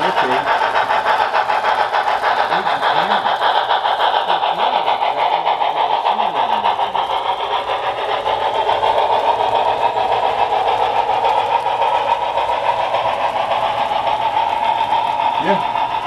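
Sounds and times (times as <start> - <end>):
fine fast clatter: 0.0 - 16.0
model train wheels rumbling: 0.0 - 16.0.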